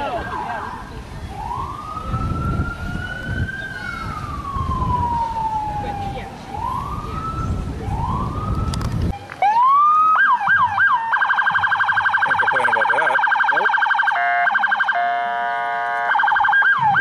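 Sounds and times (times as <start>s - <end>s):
electronic siren wailing and yelping: 9.5s - 17.0s.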